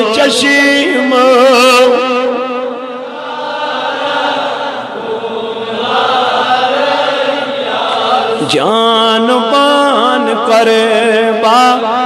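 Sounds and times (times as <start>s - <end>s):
person chanting devotional melody: 0.0s - 12.0s.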